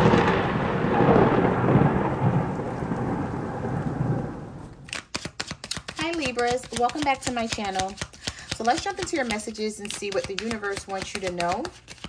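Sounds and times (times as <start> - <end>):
rain: 0.0 - 4.9
thunder rumbling: 0.0 - 4.9.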